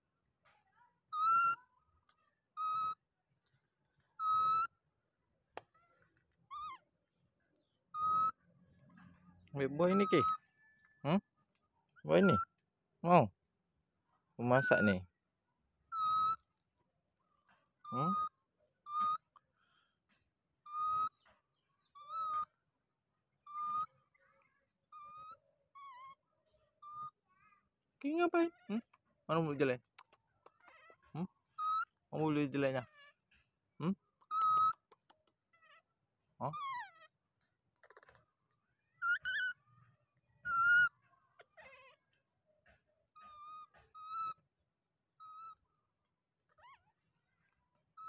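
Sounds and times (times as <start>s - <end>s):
baby monkey coo calls: 1.1s - 3.0s, 4.0s - 4.8s, 5.6s - 7.0s, 7.6s - 11.2s, 15.9s - 16.6s, 17.4s - 19.6s, 20.6s - 22.7s, 23.4s - 27.7s, 30.0s - 45.7s, 46.4s - 48.0s.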